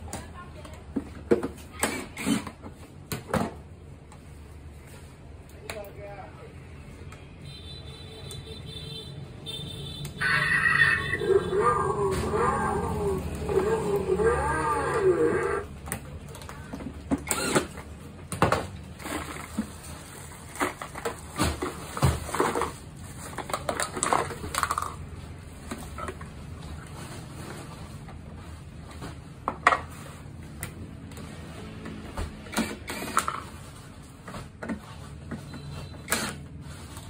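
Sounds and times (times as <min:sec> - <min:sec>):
plastic parts clicking and knocking: 0:20.4 - 0:26.4.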